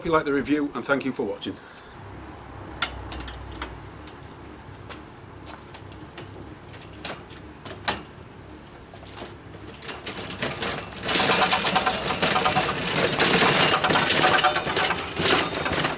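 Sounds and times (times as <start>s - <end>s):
wheels rolling over stone paving: 2.8s - 15.9s
metal frame rattling: 9.6s - 15.9s.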